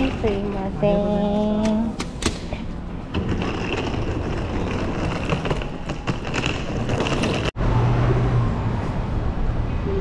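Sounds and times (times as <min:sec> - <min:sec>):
suitcase wheels rolling on tiles: 0:00.0 - 0:01.0, 0:03.1 - 0:07.6.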